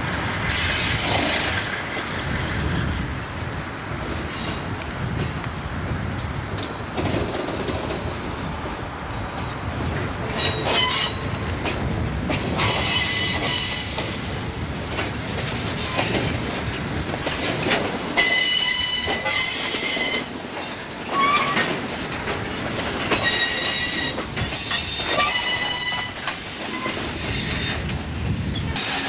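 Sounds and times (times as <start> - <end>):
train wheels squealing on rails: 0.0 - 3.1, 4.2 - 4.8, 10.3 - 14.4, 15.0 - 29.0
rumble of moving train: 0.0 - 29.0.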